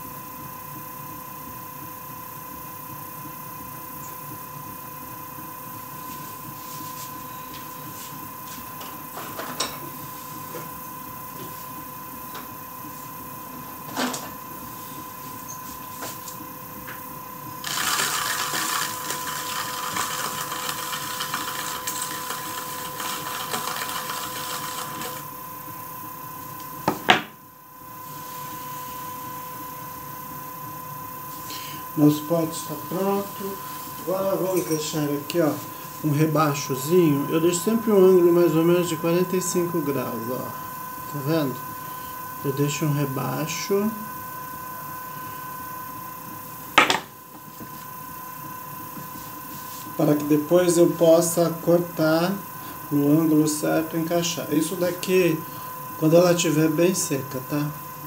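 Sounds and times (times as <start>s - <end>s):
potter's wheel motor whine: 0.0s - 58.0s
hands rubbing spinning clay: 17.7s - 25.3s.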